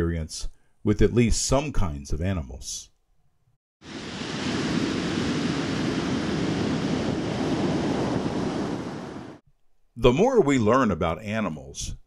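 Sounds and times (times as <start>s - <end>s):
surf rushing on beach: 3.8s - 9.4s
wind on microphone: 3.9s - 9.4s.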